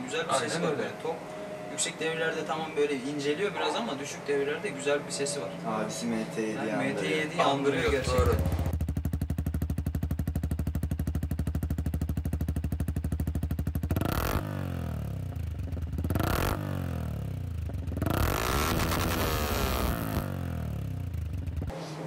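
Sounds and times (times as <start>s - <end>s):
motorcycle engine idling and revving: 7.8s - 21.8s.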